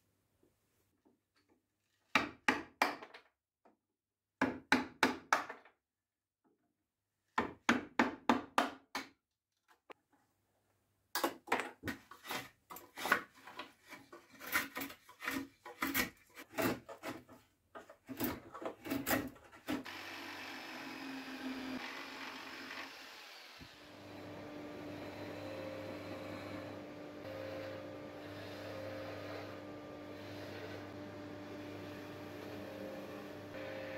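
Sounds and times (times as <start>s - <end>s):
hand tool working wood: 11.8s - 20.0s, 24.3s - 33.5s
small power tool humming: 19.8s - 33.9s.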